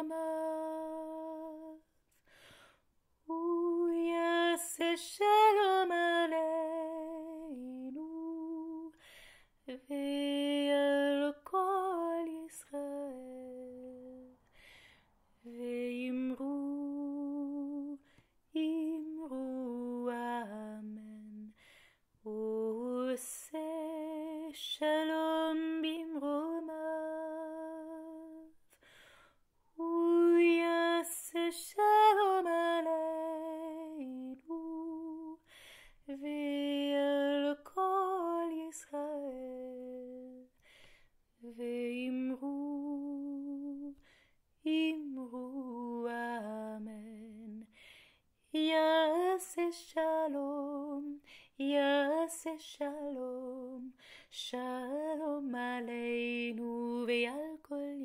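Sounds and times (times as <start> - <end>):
soprano voice singing: 0.0 - 2.0, 3.2 - 14.4, 15.4 - 28.7, 29.7 - 47.8, 48.4 - 58.0
singer breathing: 2.2 - 2.9, 14.5 - 15.2, 28.7 - 29.4, 35.4 - 36.0, 47.7 - 48.3.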